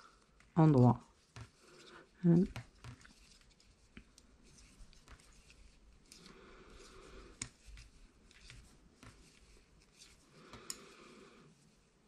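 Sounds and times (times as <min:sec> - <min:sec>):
yarn rubbing: 0:00.7 - 0:10.6
knitting needles clicking: 0:10.5 - 0:10.9.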